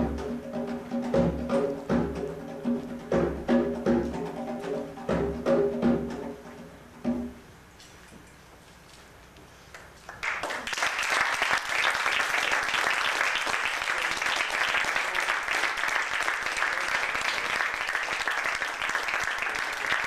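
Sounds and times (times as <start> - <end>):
audience applauding: 10.1 - 20.0.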